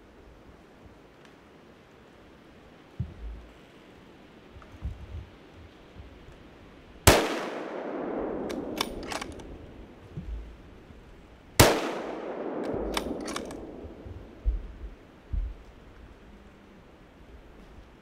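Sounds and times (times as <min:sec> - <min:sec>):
gunshots echoing: 0:07.1 - 0:10.0, 0:11.6 - 0:14.4
sharp clicks: 0:08.4 - 0:09.6, 0:12.6 - 0:14.0.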